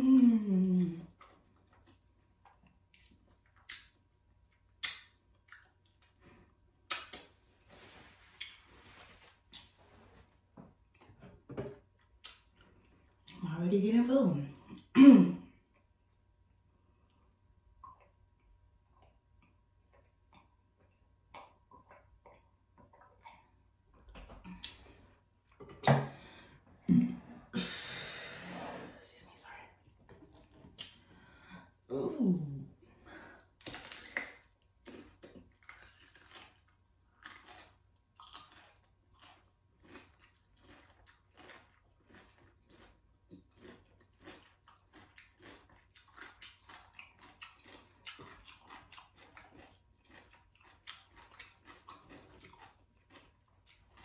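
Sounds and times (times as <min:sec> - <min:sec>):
lip smacks while chewing: 0:01.1 - 0:06.2, 0:06.8 - 0:07.4
paper towel rustling: 0:07.6 - 0:10.2.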